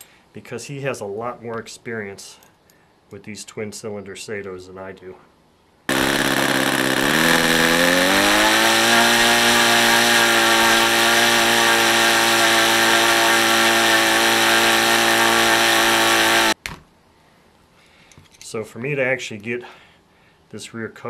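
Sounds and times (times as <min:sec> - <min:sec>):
model glow engine running: 0:05.9 - 0:16.6.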